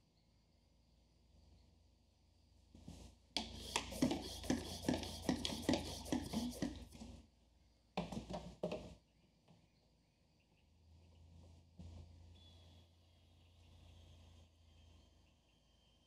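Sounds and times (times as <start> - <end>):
hand mister spraying water: 3.4 - 7.0.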